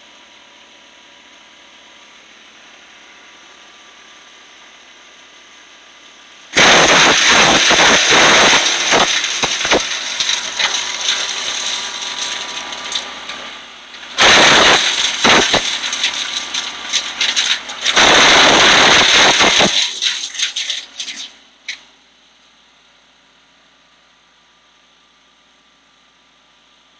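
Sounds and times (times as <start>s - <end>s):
wood chipper shredding branches: 6.4s - 21.4s.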